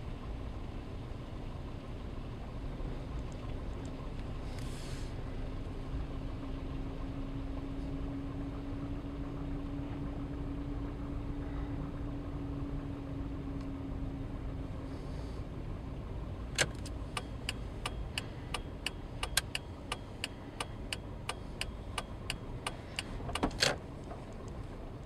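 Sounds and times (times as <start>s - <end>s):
car engine and road rumble: 0.0s - 25.0s
turn indicator ticking: 16.5s - 24.6s.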